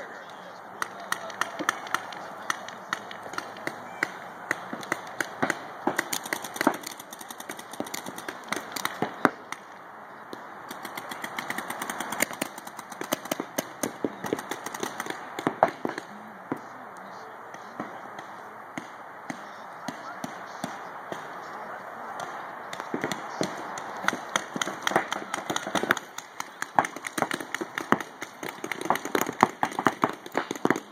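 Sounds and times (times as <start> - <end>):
paintball markers popping: 0.8 - 9.6, 22.2 - 30.9.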